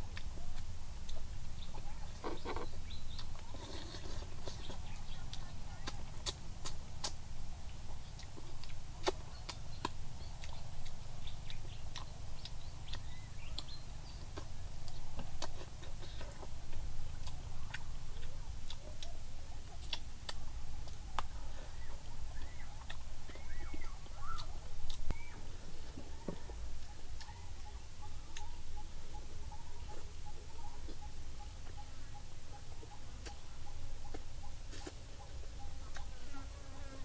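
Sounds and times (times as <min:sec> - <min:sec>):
mouth chewing smacks: 0:00.1 - 0:26.3.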